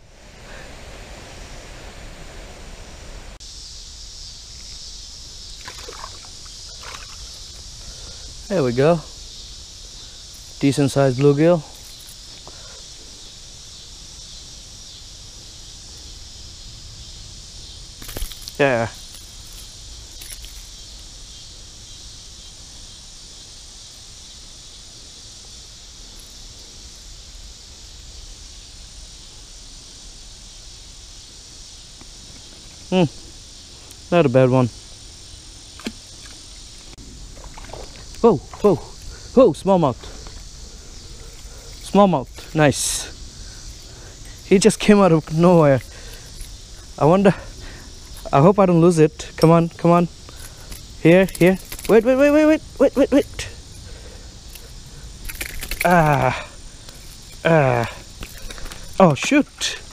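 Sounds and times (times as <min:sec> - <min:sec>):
creek ambience: 0:00.0 - 0:27.9, 0:28.5 - 0:59.9
high steady hiss: 0:00.0 - 0:59.9
insects chirping: 0:00.0 - 0:59.9
fish splashing at surface: 0:05.6 - 0:07.3, 0:37.4 - 0:38.6.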